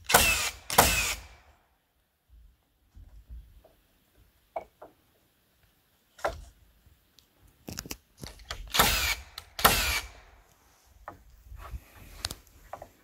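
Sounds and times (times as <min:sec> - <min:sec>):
cordless drill driving screws: 0:00.1 - 0:01.3, 0:08.6 - 0:10.2.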